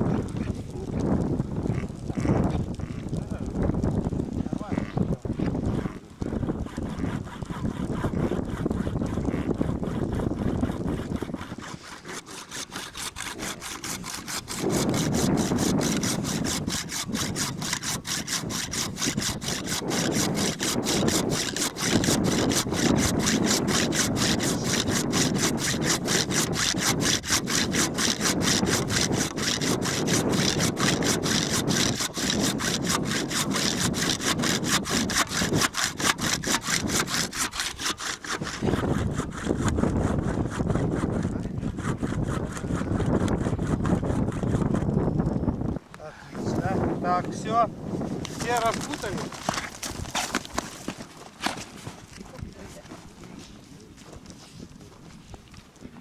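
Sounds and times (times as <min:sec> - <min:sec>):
hand saw cutting antler: 0:05.7 - 0:45.2, 0:48.2 - 0:52.4.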